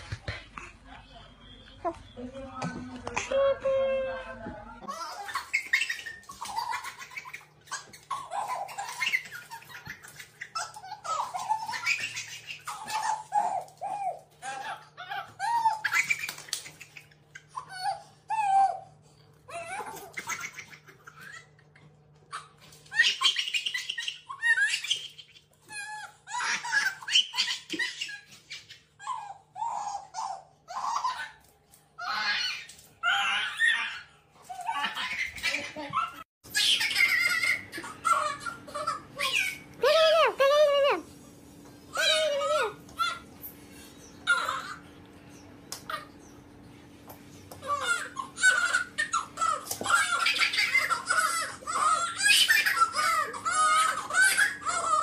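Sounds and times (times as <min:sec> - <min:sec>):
baby squealing and laughing: 0:32.0 - 0:40.9, 0:44.2 - 0:44.8, 0:47.6 - 0:55.0.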